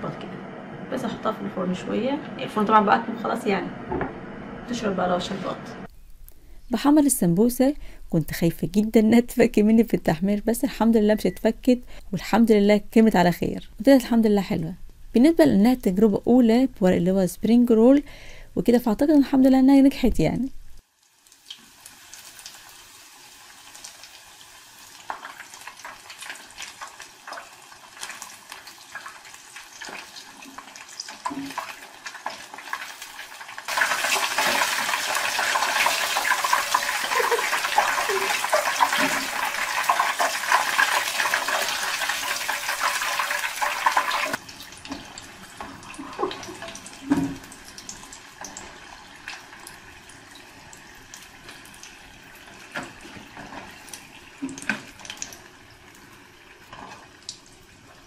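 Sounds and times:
oil sizzling and crackling: 0:20.6 - 0:58.0.

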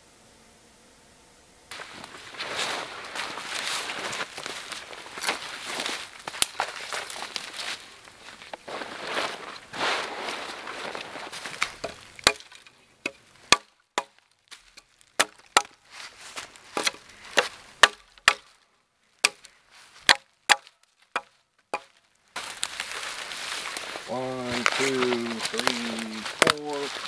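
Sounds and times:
rustling of canvas and needles: 0:01.7 - 0:27.0
hatchet chopping into log: 0:11.8 - 0:14.2, 0:15.2 - 0:15.8, 0:16.8 - 0:18.5, 0:19.2 - 0:21.9, 0:26.4 - 0:26.7.

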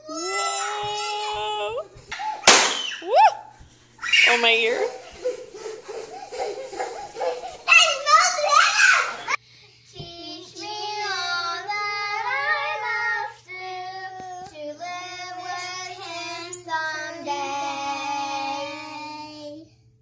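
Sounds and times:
girls singing together: 0:09.9 - 0:19.7.

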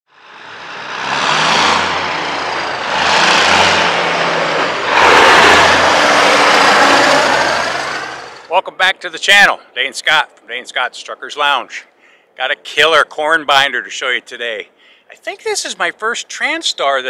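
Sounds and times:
diesel truck accelerating past: 0:00.1 - 0:08.5.

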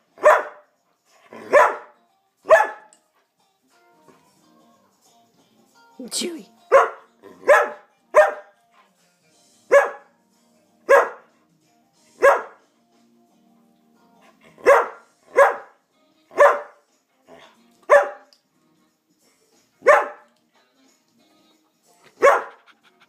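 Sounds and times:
dog barking: 0:00.2 - 0:00.7, 0:01.3 - 0:02.9, 0:06.7 - 0:08.6, 0:09.7 - 0:10.1, 0:10.9 - 0:11.3, 0:12.2 - 0:12.6, 0:14.6 - 0:16.8, 0:17.9 - 0:18.3, 0:19.8 - 0:20.3, 0:22.1 - 0:22.7.

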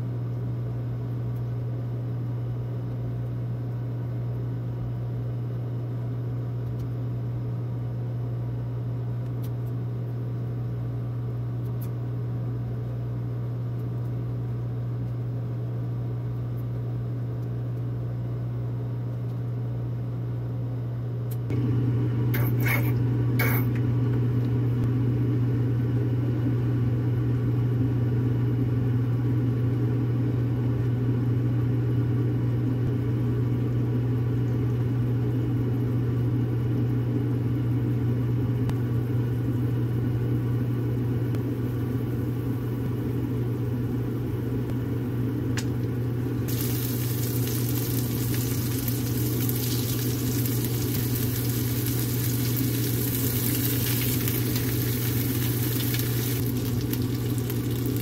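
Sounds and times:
low mechanical hum: 0:00.0 - 0:58.0
click: 0:06.6 - 0:06.9, 0:11.6 - 0:12.0
food sizzling in a pan: 0:46.5 - 0:58.0.

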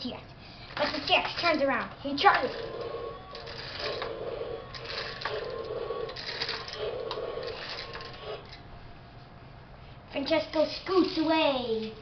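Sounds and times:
toy gear motor clicking and grinding: 0:00.7 - 0:08.6.

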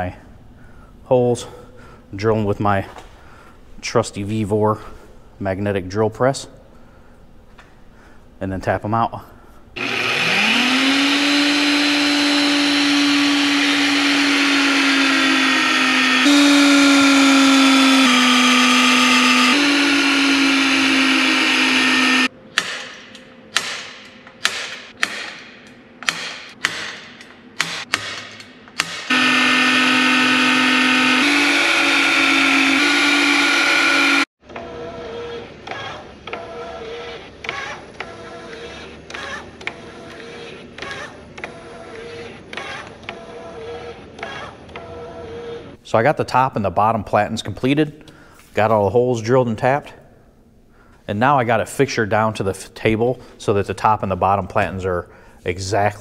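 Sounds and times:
drill press motor whining: 0:09.8 - 0:22.3, 0:29.1 - 0:45.8
short sharp drilling sounds: 0:09.8 - 0:22.3, 0:28.9 - 0:34.3.

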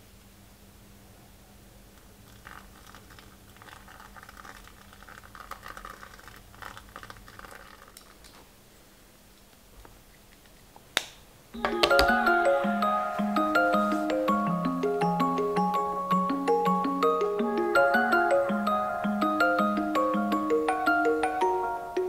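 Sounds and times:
rustling of small objects: 0:02.2 - 0:08.6
low steady hum: 0:08.0 - 0:22.0.

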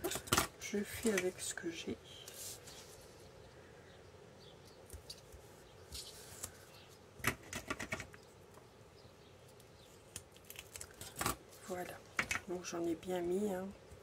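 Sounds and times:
foam tape rustling and clicking: 0:04.9 - 0:08.6, 0:09.4 - 0:11.4
crackles: 0:09.4 - 0:12.9.

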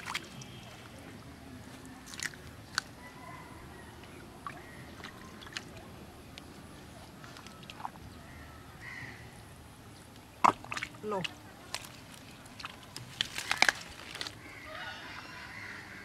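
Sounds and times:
shallow water sloshing: 0:00.0 - 0:02.9, 0:04.3 - 0:08.2, 0:10.3 - 0:14.4
wet mud squelching: 0:00.0 - 0:03.1, 0:04.0 - 0:08.3, 0:10.2 - 0:14.6.

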